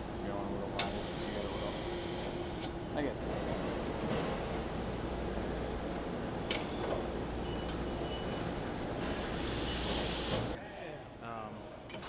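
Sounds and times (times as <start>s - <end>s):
machinery rumble and hum: 0.0s - 9.3s.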